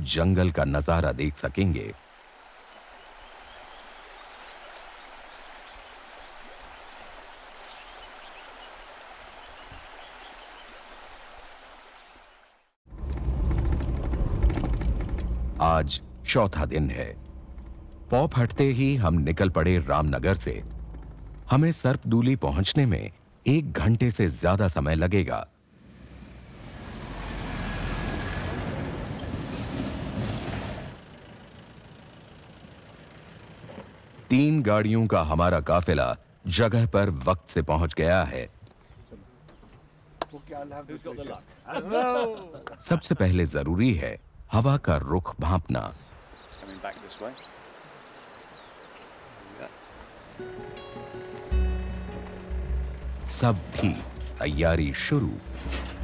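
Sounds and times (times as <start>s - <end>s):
river water flowing: 1.3s - 12.8s, 46.0s - 53.2s
vehicle driving past: 25.6s - 34.3s
rattling: 55.4s - 56.0s.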